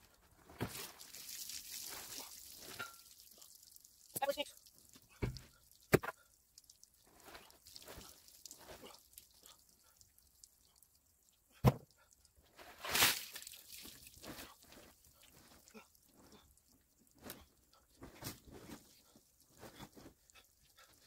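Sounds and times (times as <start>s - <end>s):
plastic tarp crinkling and rustling: 12.5s - 15.6s.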